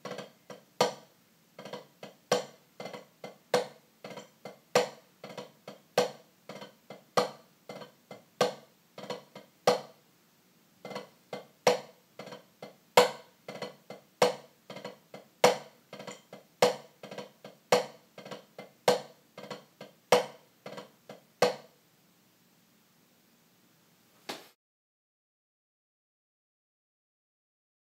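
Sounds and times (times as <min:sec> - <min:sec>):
drumsticks on a practice pad: 0:00.0 - 0:10.0, 0:10.8 - 0:21.8.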